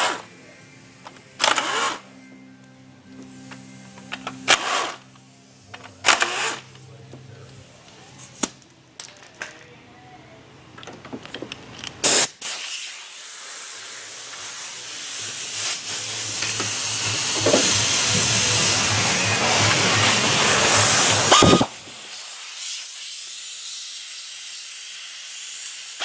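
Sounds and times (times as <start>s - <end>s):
sharp hissing burst: 0.0s - 2.2s, 12.0s - 26.0s
steady hiss: 0.0s - 8.5s, 12.0s - 26.0s.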